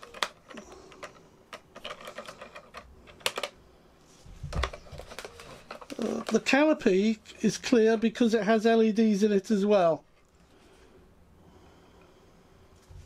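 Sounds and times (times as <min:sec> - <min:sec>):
hands handling foam and plastic: 0:00.0 - 0:03.6, 0:04.2 - 0:07.2.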